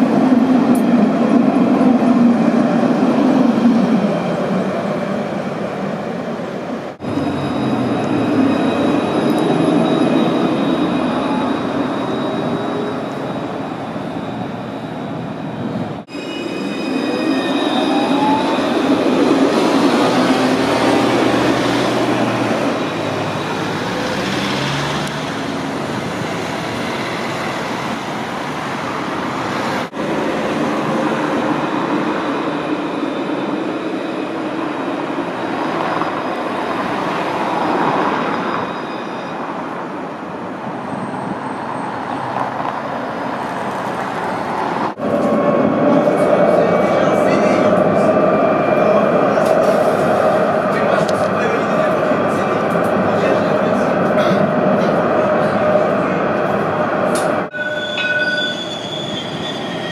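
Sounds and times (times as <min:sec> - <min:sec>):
street traffic noise: 0:00.0 - 0:59.9
wheels rumbling on rail: 0:00.0 - 0:59.9
tram motor whine: 0:06.9 - 0:34.6.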